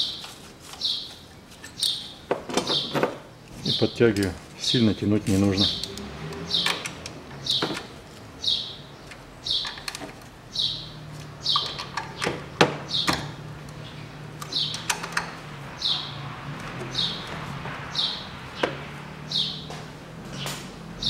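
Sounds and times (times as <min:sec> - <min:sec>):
bird chirping: 0:00.0 - 0:04.0, 0:07.4 - 0:09.9, 0:10.5 - 0:21.0.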